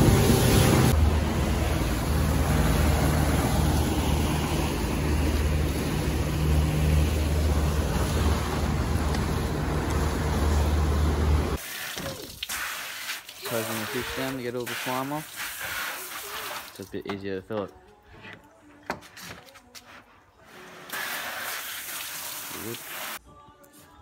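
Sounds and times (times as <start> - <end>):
motorboat engine humming: 0.0 - 11.6
water rushing past hull: 0.0 - 12.5.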